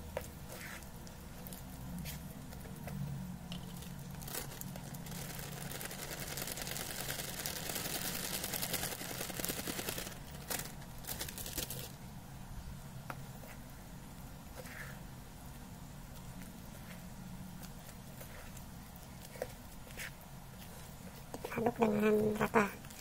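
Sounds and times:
plastic bag crinkling: 3.5s - 12.0s.

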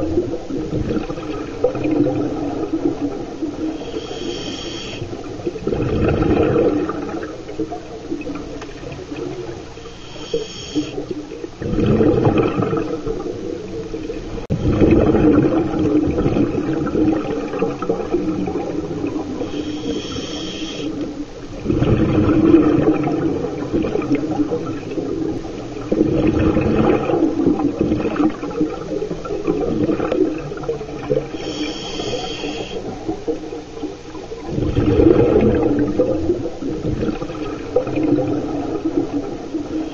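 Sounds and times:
underwater exhaled bubbling: 0.0s - 39.9s
regulator hissing inhalations: 3.8s - 5.1s, 9.8s - 11.1s, 19.4s - 21.0s, 31.3s - 32.9s.

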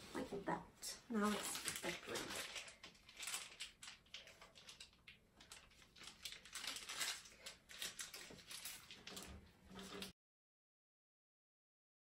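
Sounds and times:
plastic piping bag crinkling: 0.9s - 10.2s
small clicks and crackles: 1.1s - 10.2s.

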